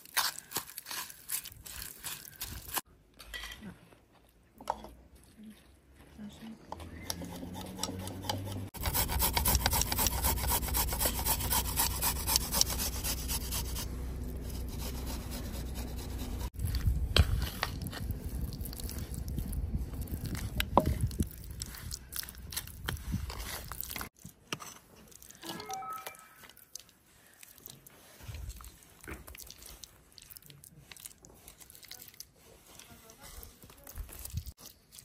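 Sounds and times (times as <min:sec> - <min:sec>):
wooden fork scraping wooden bowl: 0:06.8 - 0:16.6.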